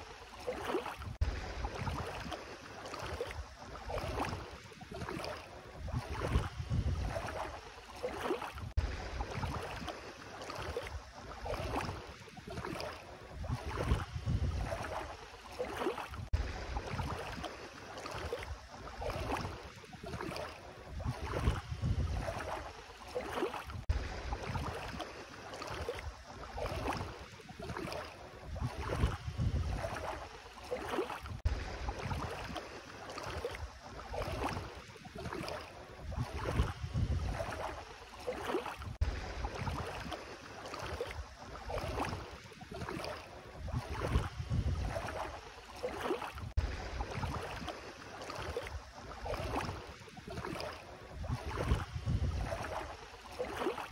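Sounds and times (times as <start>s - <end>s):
footsteps sloshing through water: 0.0s - 53.9s
wind buffeting microphone: 5.8s - 7.4s, 13.4s - 15.0s, 21.0s - 22.5s, 28.5s - 30.1s, 36.1s - 37.6s, 43.6s - 45.2s, 51.1s - 52.8s.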